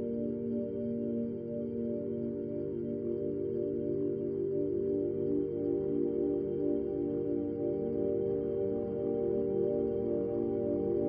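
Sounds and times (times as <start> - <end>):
ambient music with sustained tones: 0.0 - 11.0.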